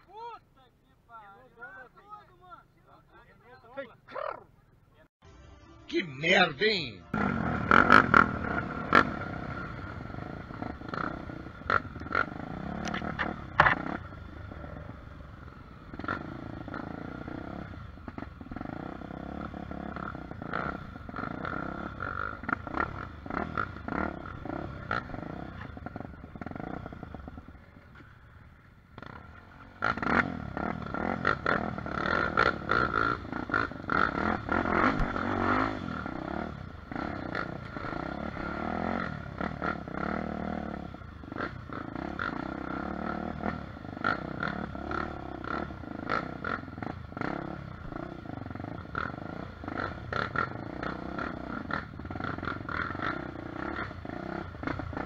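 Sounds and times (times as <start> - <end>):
motorcycle engine revving: 6.3 - 55.0
knocks and rattles over rough ground: 12.8 - 14.1.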